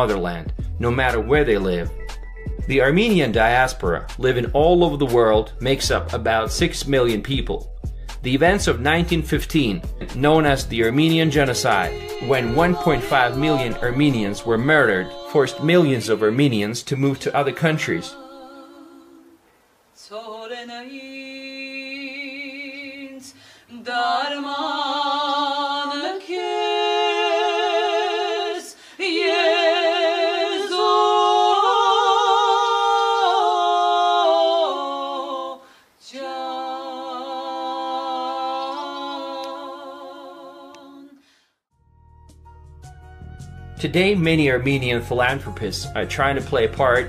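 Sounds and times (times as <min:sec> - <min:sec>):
women singing unaccompanied: 0:11.0 - 0:16.8, 0:17.7 - 0:19.4, 0:20.0 - 0:41.2.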